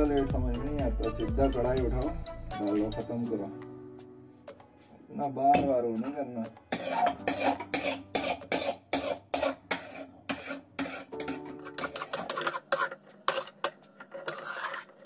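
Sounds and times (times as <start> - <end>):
metal spoon scraping a steel pan: 6.0 - 15.0.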